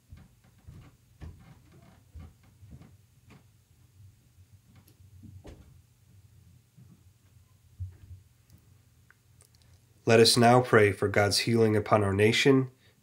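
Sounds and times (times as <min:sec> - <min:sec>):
faint irregular clicks: 0:07.8 - 0:09.9.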